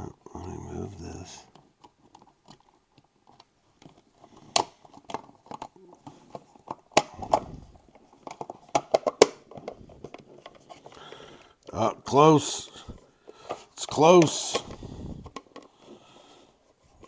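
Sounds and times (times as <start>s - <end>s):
plastic case clicking and creaking: 1.4s - 11.8s, 12.9s - 17.0s.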